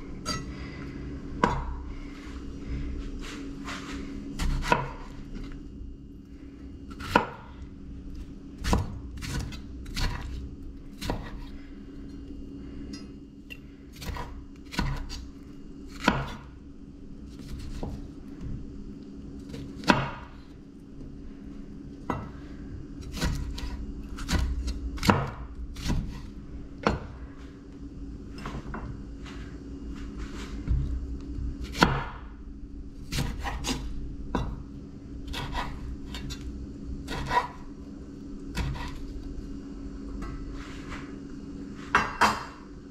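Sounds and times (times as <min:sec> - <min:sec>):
knife cutting tomatoes: 0:33.0 - 0:33.9, 0:35.3 - 0:36.4, 0:37.1 - 0:37.6.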